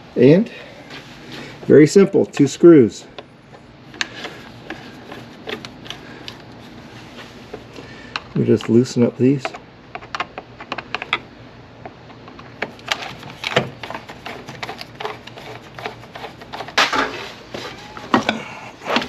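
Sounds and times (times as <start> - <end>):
screwdriver clicking and scraping: 3.9 - 6.5, 12.7 - 16.8.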